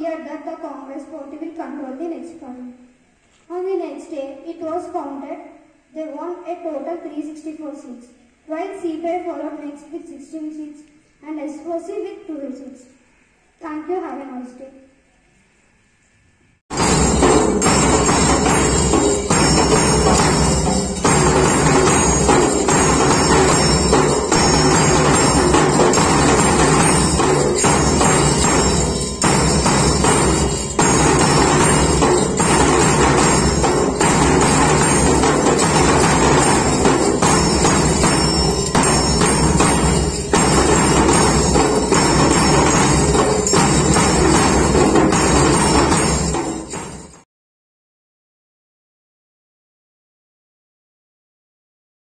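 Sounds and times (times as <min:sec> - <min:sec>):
bass drum: 0:16.7 - 0:46.9
hand cymbals clashing: 0:16.7 - 0:47.2
triangle ringing: 0:16.7 - 0:47.2.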